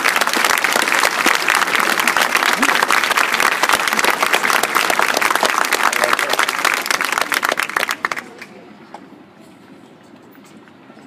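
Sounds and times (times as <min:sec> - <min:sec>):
audience applauding: 0:00.0 - 0:08.5
quiet crowd background: 0:00.0 - 0:11.0.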